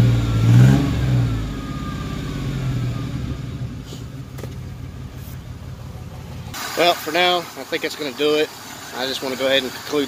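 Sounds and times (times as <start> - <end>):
engine revving and idling: 0.0 - 7.3
faint engine whine: 0.3 - 6.6.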